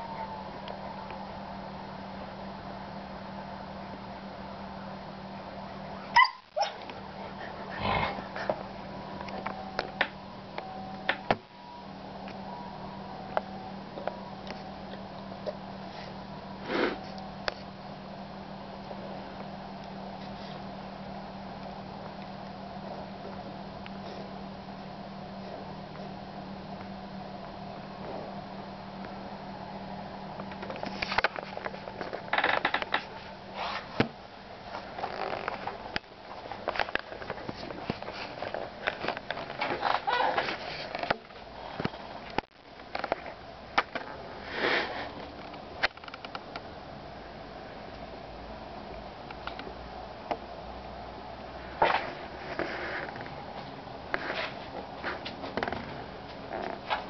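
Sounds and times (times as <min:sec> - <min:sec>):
low room hum: 0:00.0 - 0:57.0
dogs sniffing: 0:06.7 - 0:08.8.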